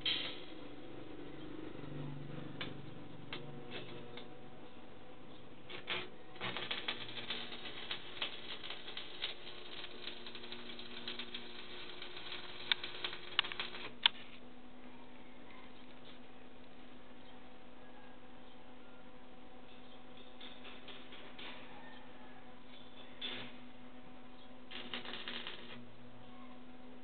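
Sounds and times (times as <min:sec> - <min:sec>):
welding arc crackling: 0:05.6 - 0:14.2, 0:24.7 - 0:25.8
sharp welding pops: 0:05.7 - 0:14.2, 0:24.7 - 0:25.8.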